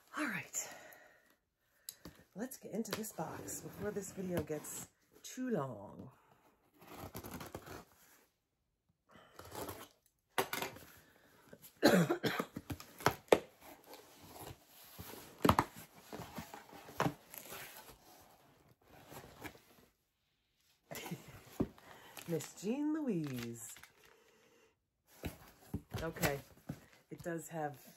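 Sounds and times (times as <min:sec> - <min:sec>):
cardboard flaps rustling: 0:23.2 - 0:23.9.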